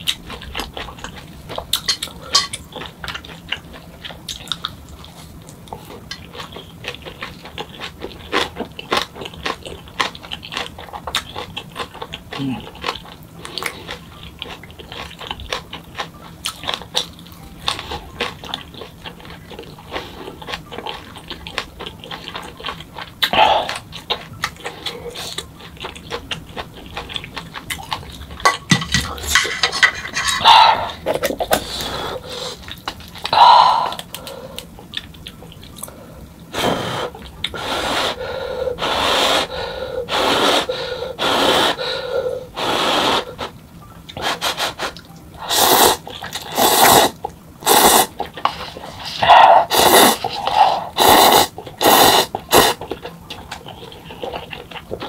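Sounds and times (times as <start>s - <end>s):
chewing: 0.0s - 36.0s, 43.4s - 55.0s
loud breathy noodle slurps: 44.2s - 52.8s.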